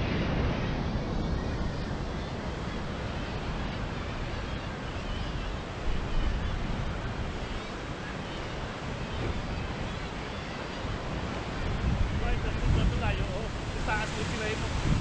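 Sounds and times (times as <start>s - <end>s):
wind buffeting microphone: 0.0s - 15.0s
sea surf breaking on rocks: 6.5s - 15.0s.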